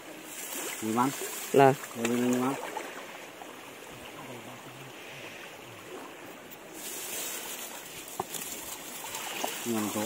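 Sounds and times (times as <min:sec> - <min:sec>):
water running over rocks: 0:00.0 - 0:10.0
person wading and splashing: 0:05.9 - 0:10.0.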